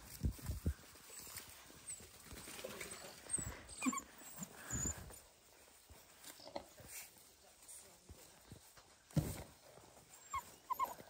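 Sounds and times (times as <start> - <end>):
puppies scuffling: 0.0 - 11.0
puppy squeaks: 2.9 - 5.0, 10.2 - 11.0.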